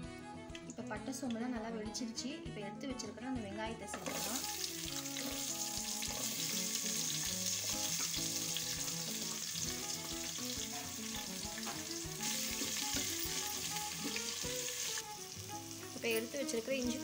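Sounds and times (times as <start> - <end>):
background music: 0.0 - 17.0
onions sizzling in hot oil: 4.0 - 17.0.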